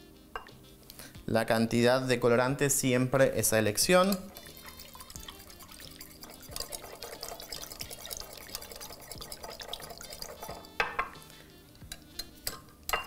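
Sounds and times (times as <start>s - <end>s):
liquid sloshing in bowl: 3.9s - 11.2s
spatula scraping glass bowl: 3.9s - 13.0s
knock on glass bowl: 10.5s - 11.2s.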